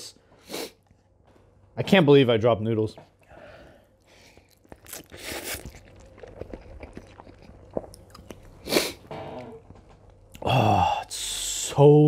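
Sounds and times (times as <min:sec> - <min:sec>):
slurping and chewing noodles: 0:04.0 - 0:10.4.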